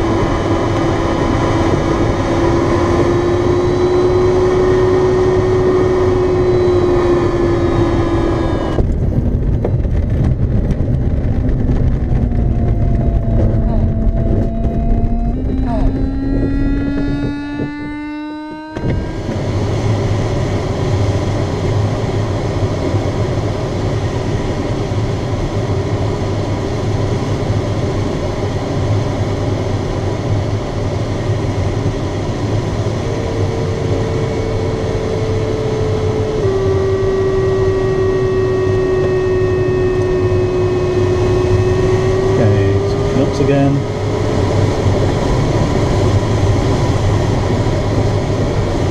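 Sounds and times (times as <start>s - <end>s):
steady electronic tone: 0.0s - 9.0s, 11.2s - 21.0s, 31.9s - 46.8s
rising electronic tone: 0.0s - 9.8s, 10.5s - 20.9s, 31.8s - 48.9s.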